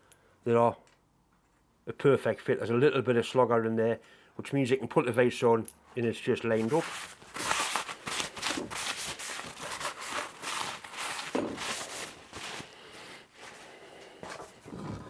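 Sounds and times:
paper towel wiping on steel: 6.5 - 12.8.

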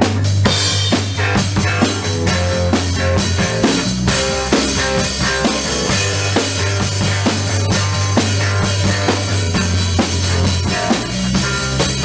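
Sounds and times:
drum kit beat: 0.0 - 12.0
rock music: 0.0 - 12.0.

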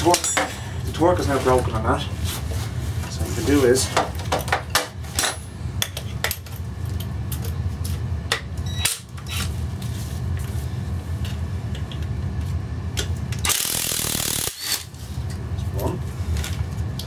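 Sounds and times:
metal tools clinking: 0.0 - 0.9
cordless drill spinning: 13.5 - 14.8.

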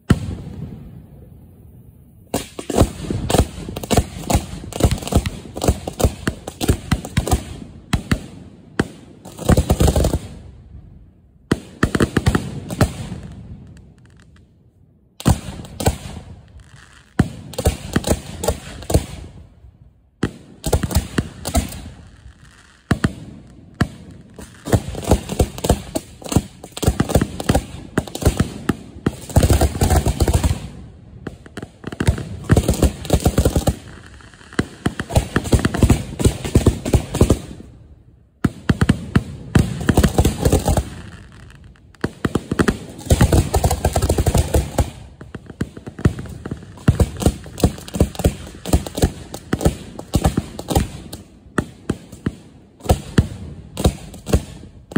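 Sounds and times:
firework mortars launching: 15.2 - 54.9.

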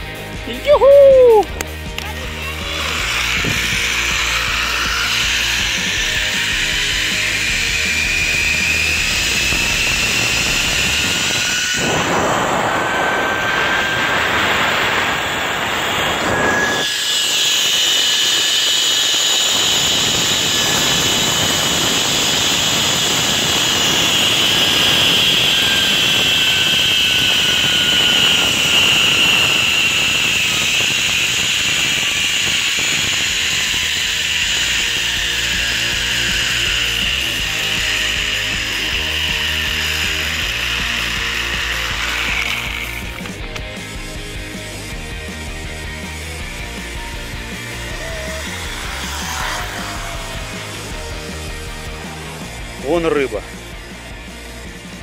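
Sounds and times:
zip-line pulleys whirring on cable: 0.0 - 55.0
wind noise: 2.6 - 38.4.

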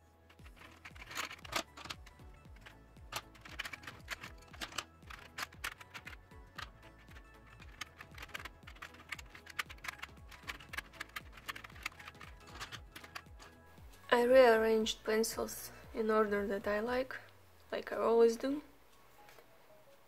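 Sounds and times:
soft background music: 0.0 - 20.0
pencils clattering into metal tin: 0.3 - 13.6.

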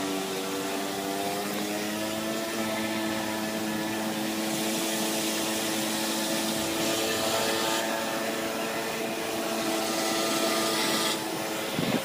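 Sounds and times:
moped engine running: 0.0 - 12.0
wind rushing over microphone: 11.0 - 12.0.

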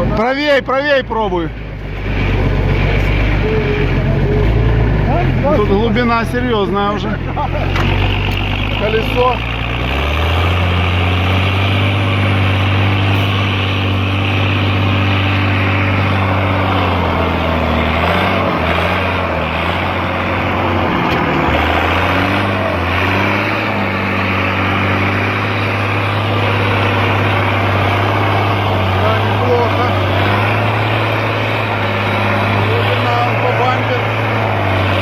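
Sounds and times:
truck engine running under load: 0.0 - 35.0.

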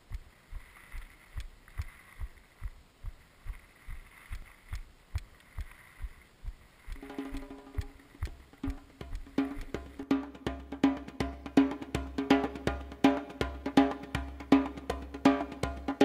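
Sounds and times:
low drum beat: 6.0 - 16.0.

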